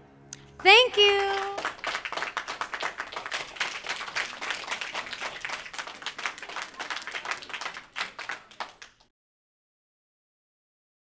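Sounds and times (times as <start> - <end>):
audience applauding: 0.5 - 9.1.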